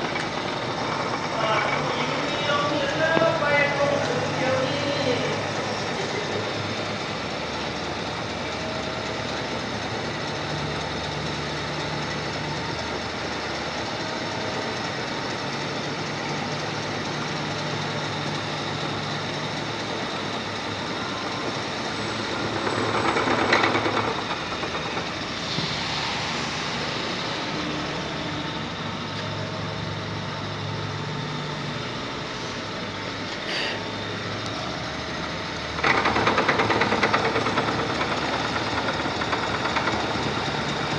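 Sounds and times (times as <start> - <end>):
milling machine cutting metal: 0.0 - 8.3, 14.6 - 29.1, 34.2 - 40.9.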